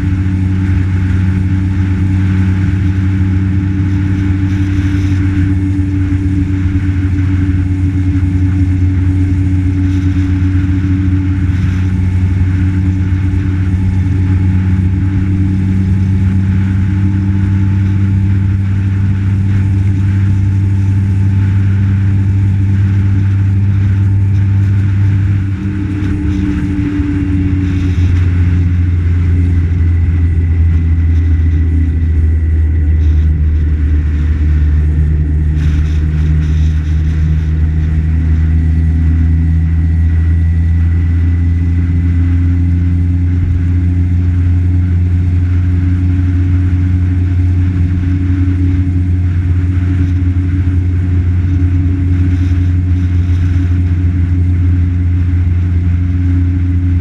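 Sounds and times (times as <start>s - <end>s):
tyre and wind noise: 0.0s - 57.0s
vehicle engine running: 0.0s - 57.0s.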